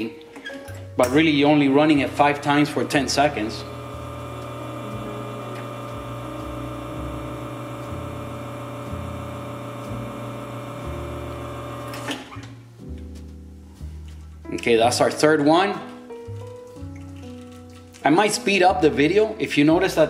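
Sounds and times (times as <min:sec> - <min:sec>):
espresso machine pump running: 0:01.8 - 0:12.3.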